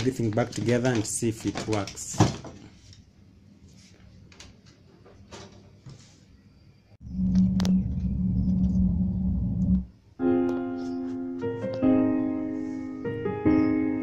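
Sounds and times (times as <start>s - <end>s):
loud steady low hum: 7.0s - 10.0s
piano music: 7.3s - 14.0s.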